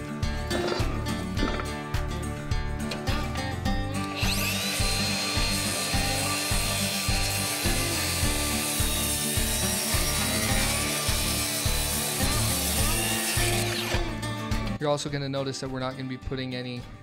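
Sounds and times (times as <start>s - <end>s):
background music with steady beat: 0.0s - 17.0s
circular saw cutting wood: 4.0s - 14.2s.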